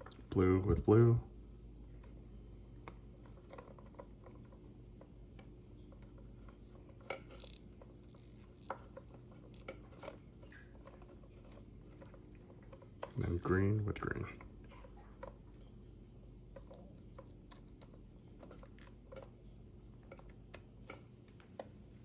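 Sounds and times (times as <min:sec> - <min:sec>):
steady low hum: 0:00.0 - 0:22.0
wire connectors clicking and rubbing: 0:02.8 - 0:13.6.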